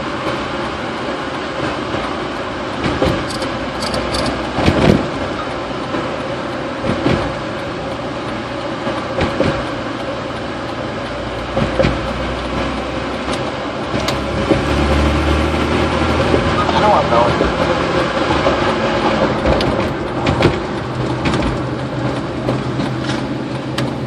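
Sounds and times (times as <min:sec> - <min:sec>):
tyre and engine rumble: 0:00.0 - 0:24.0
wheels thumping over bridge joints: 0:02.8 - 0:05.5, 0:08.9 - 0:09.8, 0:11.5 - 0:12.8, 0:15.5 - 0:24.0.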